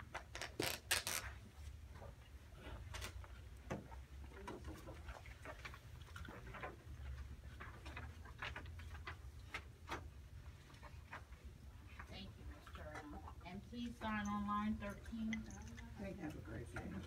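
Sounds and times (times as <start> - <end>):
low steady hum: 0.3 - 17.0
small clicks and rustles: 2.9 - 13.4.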